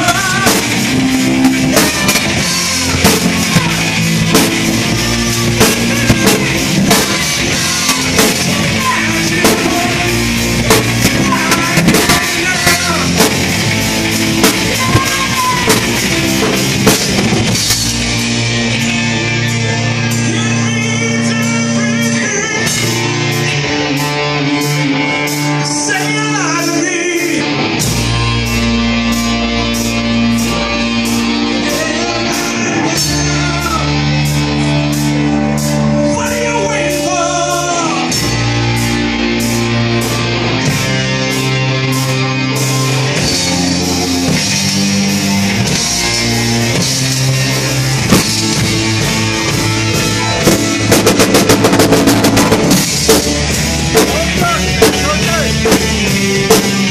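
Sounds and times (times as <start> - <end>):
man singing: 0.0 - 13.4, 14.4 - 16.0, 19.1 - 27.6, 31.5 - 34.7, 35.9 - 38.6, 53.9 - 56.9
heavy drumming: 0.0 - 56.9
held keyboard and bass notes: 0.0 - 56.9
live band playing: 0.0 - 56.9.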